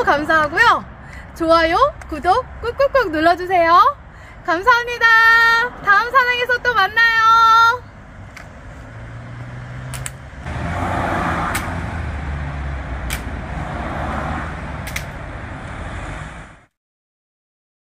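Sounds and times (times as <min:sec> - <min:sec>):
outdoor rushing noise: 0:04.0 - 0:16.7.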